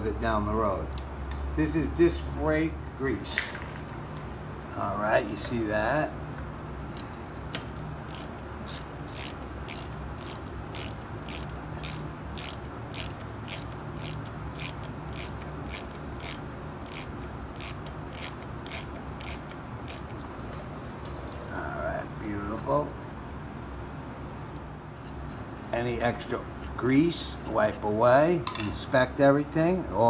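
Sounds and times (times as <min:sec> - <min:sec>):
ratchet clicking: 0:08.0 - 0:20.2.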